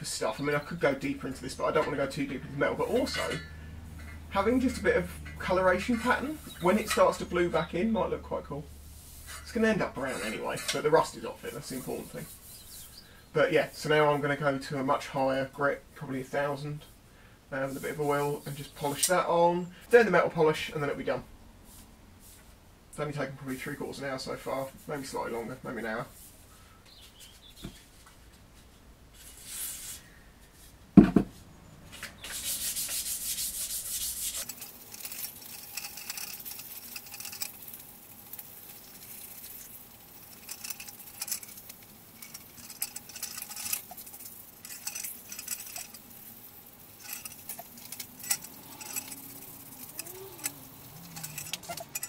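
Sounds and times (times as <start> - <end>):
sandpaper rubbing on metal: 11.5 - 13.0, 29.2 - 30.0, 32.2 - 52.0.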